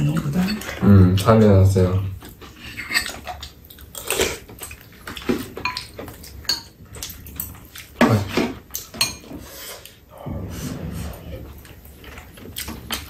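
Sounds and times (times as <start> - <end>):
cutlery clinking on ceramic bowls: 2.6 - 9.4.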